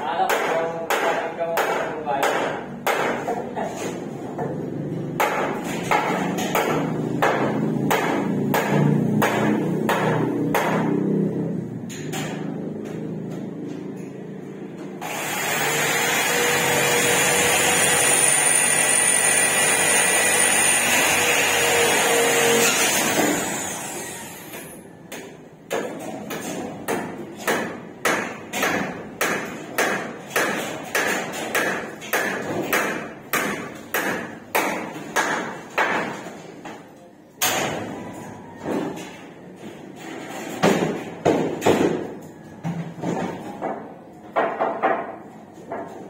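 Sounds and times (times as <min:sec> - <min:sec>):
sharp hammer strikes: 0:00.3 - 0:03.3, 0:05.2 - 0:11.1, 0:25.1 - 0:36.2
power drill running: 0:15.0 - 0:24.6.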